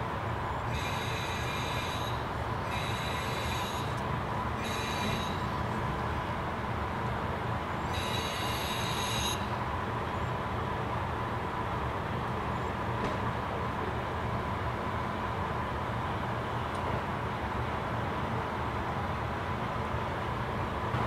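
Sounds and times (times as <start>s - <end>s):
diesel railcar engine rumble: 0.0s - 21.0s
high-pitched brake squeal: 0.7s - 4.0s, 4.6s - 5.6s, 7.8s - 9.5s.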